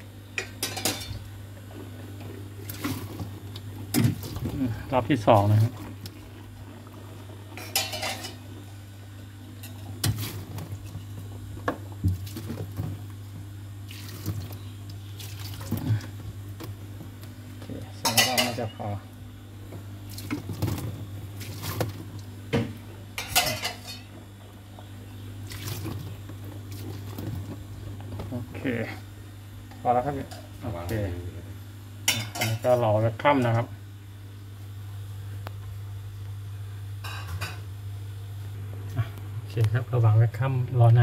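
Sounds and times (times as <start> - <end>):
steady low hum: 0.0 - 41.0
metal pot clinking: 7.6 - 8.4, 18.1 - 18.7
water splashing: 13.8 - 16.1, 25.4 - 26.1.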